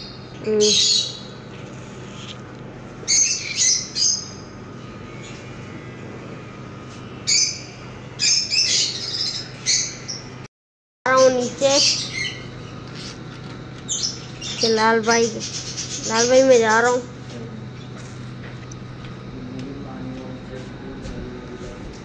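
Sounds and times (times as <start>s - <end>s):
lovebirds squawking: 0.0s - 5.6s, 11.1s - 17.1s.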